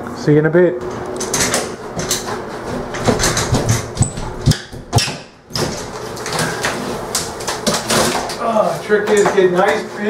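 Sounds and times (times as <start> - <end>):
sharp knocks: 0.8 - 5.9
drywall crackling and crumbling: 5.5 - 10.0.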